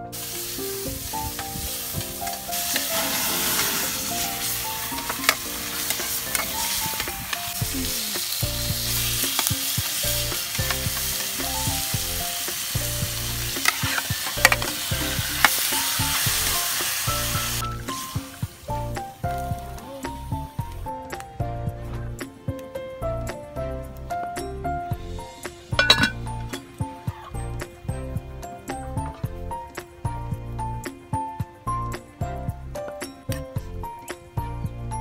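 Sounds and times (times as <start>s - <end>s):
food sizzling in oil: 0.0s - 20.8s, 24.5s - 27.5s
soft background music: 0.0s - 35.0s
oil popping: 1.2s - 17.1s, 25.7s - 26.5s.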